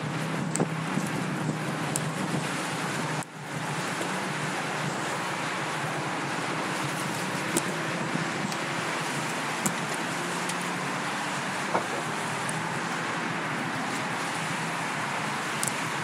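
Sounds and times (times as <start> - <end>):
road traffic noise: 0.0 - 16.0
sharp clicks: 15.6 - 15.8.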